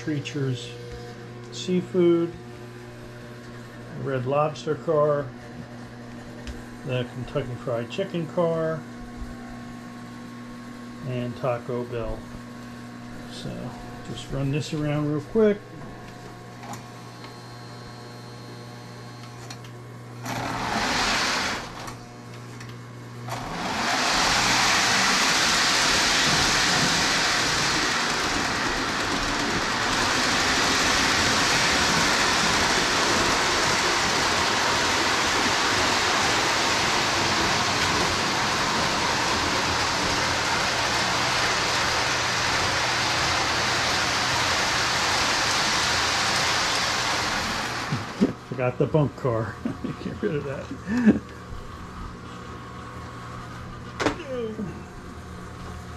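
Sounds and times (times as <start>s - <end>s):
model train whirring rumble: 20.2s - 22.0s, 23.3s - 48.6s.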